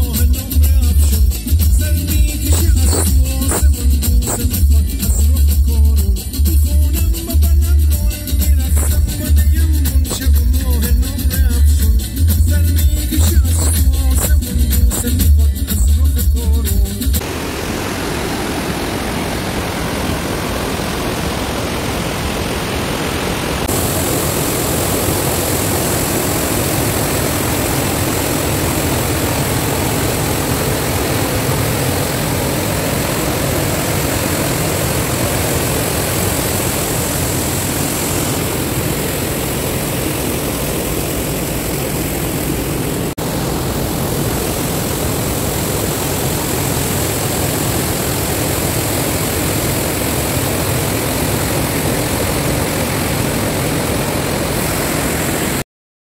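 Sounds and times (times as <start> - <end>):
small waterfall rushing: 17.2 - 55.6.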